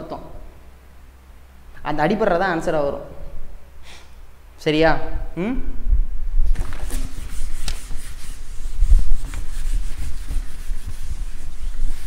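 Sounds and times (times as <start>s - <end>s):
duster wiping chalk blackboard: 6.6s - 12.0s.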